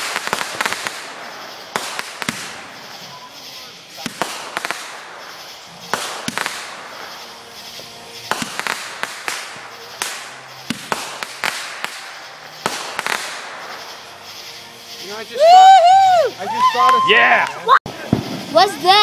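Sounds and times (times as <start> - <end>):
fireworks bangs and cracks: 0.0 - 19.0
fireworks hissing: 0.0 - 19.0.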